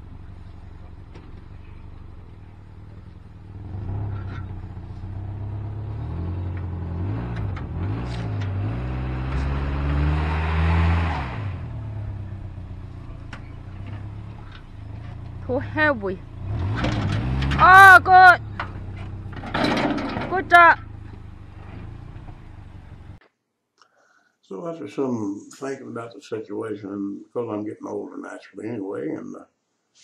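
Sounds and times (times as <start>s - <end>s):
engine revving under load: 1.0s - 23.2s.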